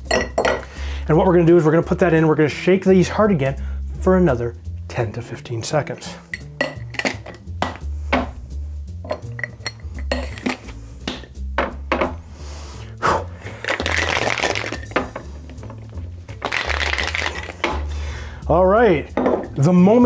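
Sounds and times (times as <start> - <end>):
ice rattling in cocktail shaker: 13.6 - 15.1, 16.4 - 17.7.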